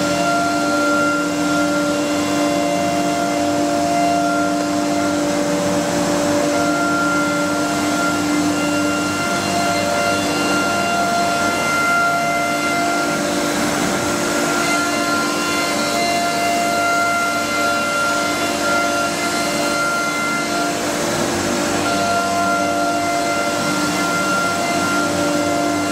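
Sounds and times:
router spindle whine and rush: 0.0 - 25.9.

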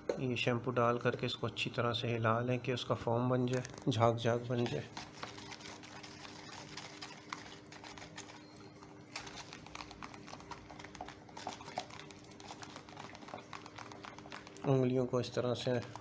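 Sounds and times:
water sloshing in a plastic bowl: 3.6 - 8.5, 9.2 - 14.9.

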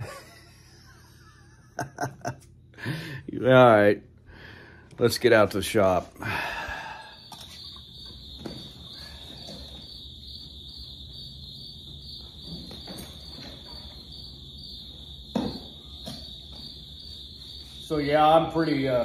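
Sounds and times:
cricket trilling: 6.1 - 19.0.

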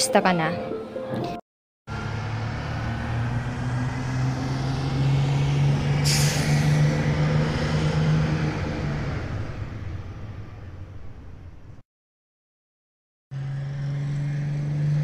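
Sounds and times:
bus engine running: 1.9 - 11.8, 13.4 - 15.0.

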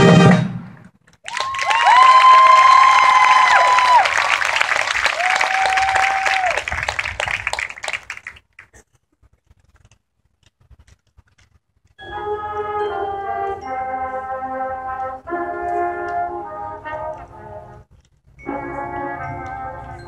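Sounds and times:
marching band brass chords: 0.0 - 0.9, 12.1 - 17.8, 18.4 - 20.0.

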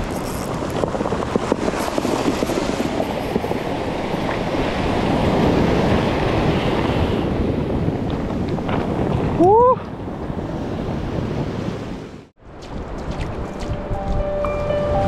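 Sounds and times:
stones clicking and rattling: 0.0 - 2.8
surf breaking on beach: 0.0 - 12.3.

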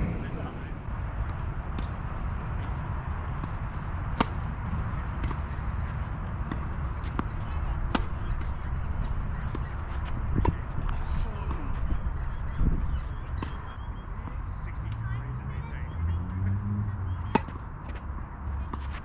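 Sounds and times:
low rumble: 0.0 - 2.6
tennis rackets striking ball: 4.1 - 4.5, 6.4 - 11.6, 13.2 - 13.7, 17.0 - 18.0.

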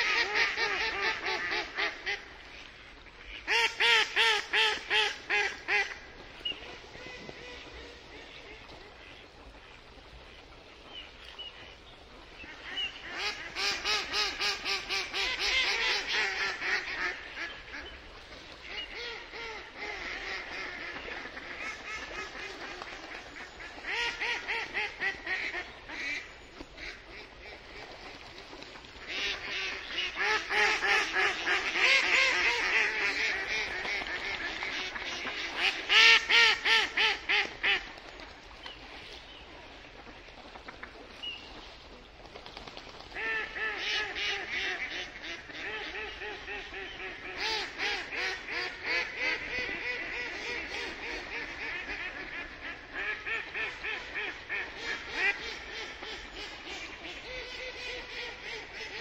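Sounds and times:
duck quacking: 0.0 - 2.2, 29.1 - 37.8, 43.2 - 59.0.

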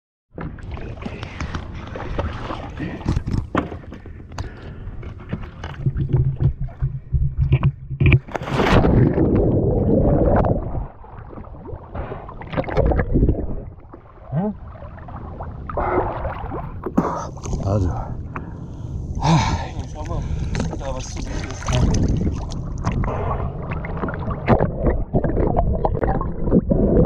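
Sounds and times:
water sloshing: 0.4 - 26.6
underwater rushing water: 5.6 - 27.0
wind on microphone: 14.9 - 27.0.

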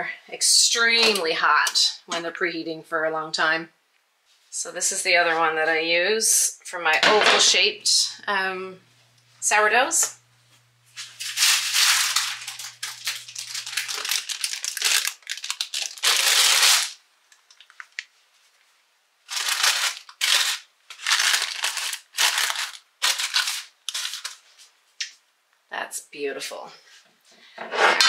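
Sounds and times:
paper crinkling and rustling: 10.9 - 18.6, 19.3 - 24.8.

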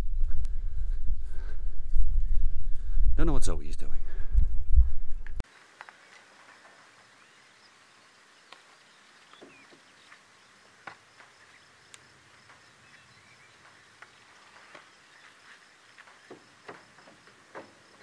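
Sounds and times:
background hiss: 5.4 - 18.0
distant birds chirping: 5.5 - 18.0
high insect drone: 5.5 - 18.0.

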